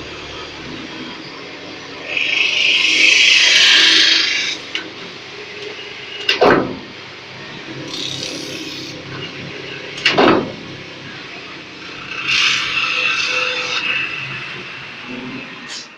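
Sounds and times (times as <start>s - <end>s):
steady machine hum: 7.6s - 9.7s
roller tool hissing on metal: 7.9s - 9.0s.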